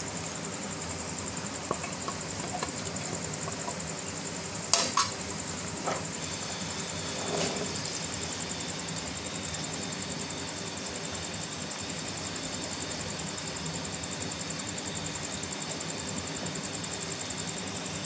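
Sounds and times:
onions sizzling in a pan: 0:01.5 - 0:15.7.

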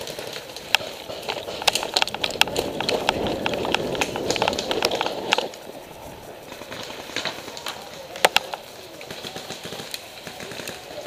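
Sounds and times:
footsteps crunching over dry leaves: 0:00.0 - 0:11.0
twigs snapping: 0:00.0 - 0:11.0.

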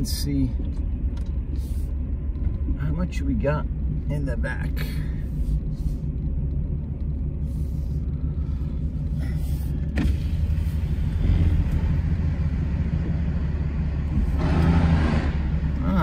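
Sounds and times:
diesel engine running: 0:00.0 - 0:16.0.

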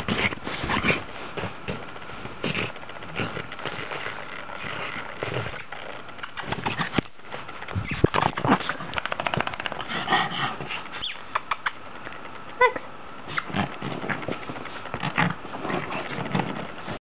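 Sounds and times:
scratching and rustling fabric: 0:00.0 - 0:11.3, 0:13.2 - 0:17.0
dog grunting: 0:09.6 - 0:11.1
dog high-pitched vocal sound: 0:12.6 - 0:13.5.

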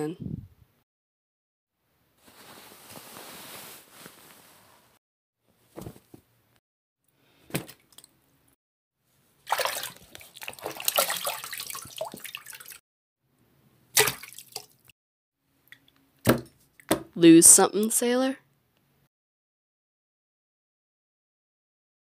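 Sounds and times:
water splashing: 0:09.4 - 0:12.8, 0:13.9 - 0:14.9.

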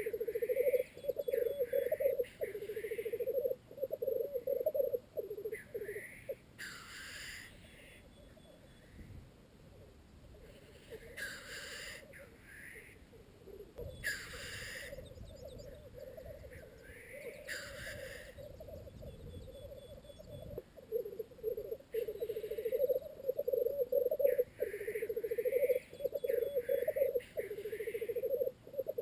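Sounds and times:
grouse bubbling song: 0:00.0 - 0:06.4, 0:13.4 - 0:29.0
grouse hissing sneeze calls: 0:10.6 - 0:12.9, 0:17.5 - 0:18.4.

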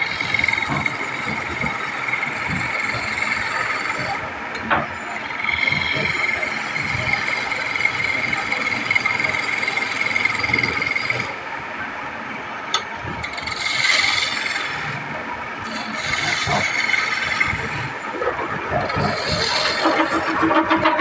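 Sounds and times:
chisel scraping spinning wood: 0:00.0 - 0:04.2, 0:05.2 - 0:11.4, 0:13.2 - 0:14.8, 0:15.6 - 0:17.8, 0:18.8 - 0:21.0
lathe running: 0:00.0 - 0:11.6, 0:12.7 - 0:21.0.

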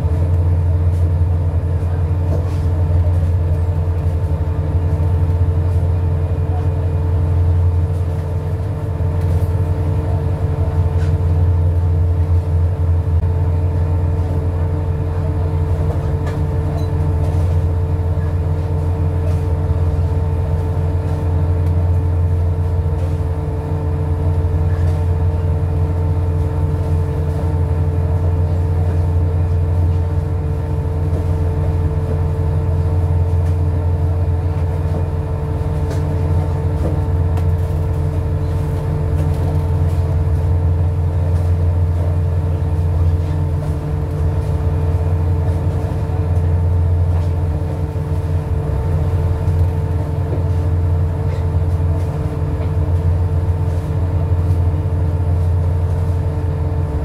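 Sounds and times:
boat engine humming: 0:00.0 - 0:57.0.

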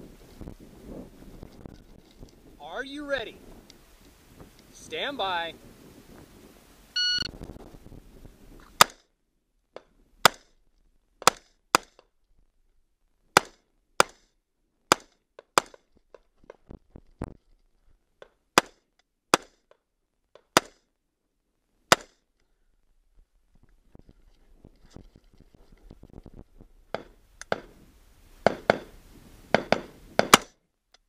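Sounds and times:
shot timer beep: 0:07.0 - 0:07.3.

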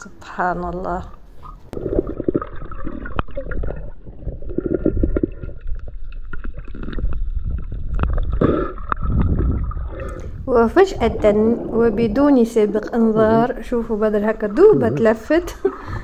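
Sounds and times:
low underwater rumble: 0:01.1 - 0:16.0
underwater gurgling and bubbling: 0:01.1 - 0:16.0.

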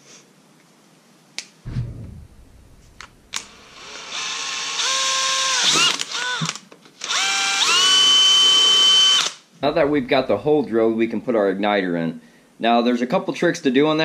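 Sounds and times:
low thump: 0:01.7 - 0:04.2
cordless drill boring plastic pipe: 0:03.7 - 0:09.4.

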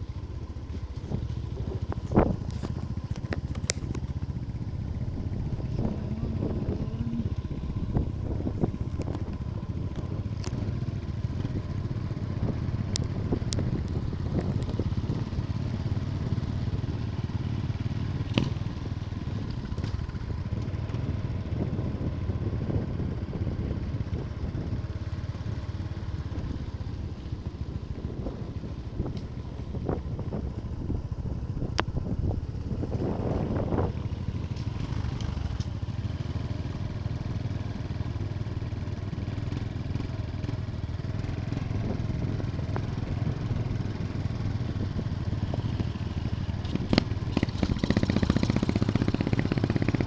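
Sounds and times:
clicks and rattles from dirt road: 0:00.0 - 0:05.9, 0:07.1 - 0:21.7, 0:31.5 - 0:50.0
motorcycle engine running: 0:00.0 - 0:50.0.

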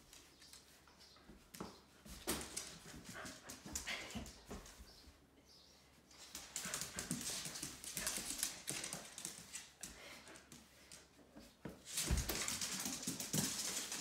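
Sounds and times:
dog claws clicking on floor: 0:06.2 - 0:11.1, 0:11.8 - 0:14.0
footsteps: 0:11.4 - 0:14.0.

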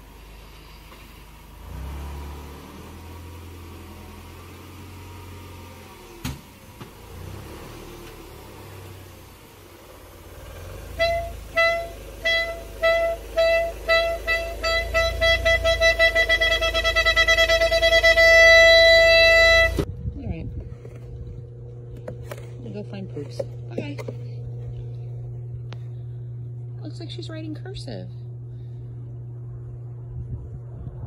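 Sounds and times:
car moving slowly rumble: 0:00.0 - 0:31.0
clarinet short notes: 0:11.0 - 0:19.8.

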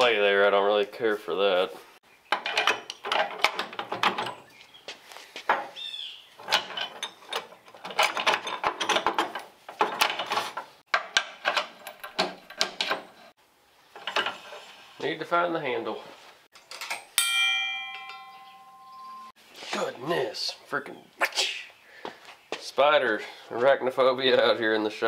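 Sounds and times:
metal clatter: 0:02.3 - 0:04.5, 0:06.4 - 0:13.3.

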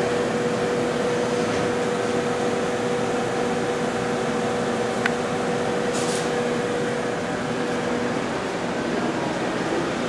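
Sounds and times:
machine electrical hum: 0:00.0 - 0:10.0
fan-like rushing noise: 0:05.2 - 0:10.0.

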